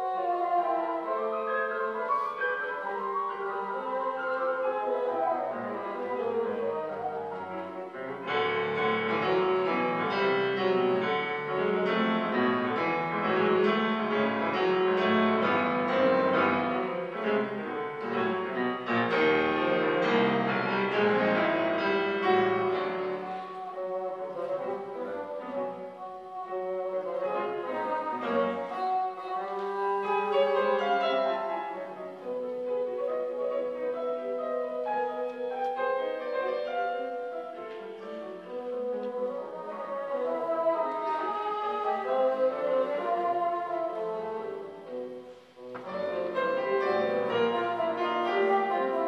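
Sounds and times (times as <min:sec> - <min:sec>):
bassoon melody: 0:00.0 - 0:49.0
piano playing: 0:00.0 - 0:49.0.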